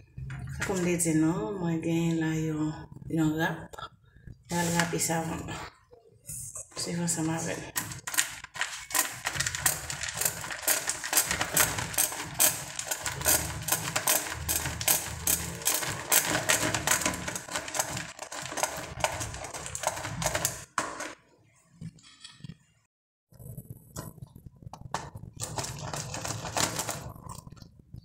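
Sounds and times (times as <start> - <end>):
soap scraping on a grater: 8.8 - 20.6.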